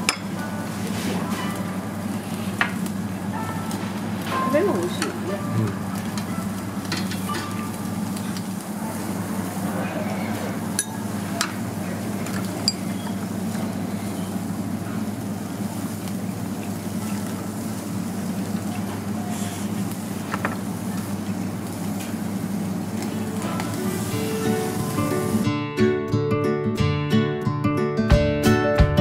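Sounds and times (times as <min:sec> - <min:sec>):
meat sizzling on a grill: 0:00.0 - 0:25.5
dishes and chopsticks clinking: 0:03.7 - 0:08.5, 0:10.7 - 0:11.6, 0:12.2 - 0:13.2.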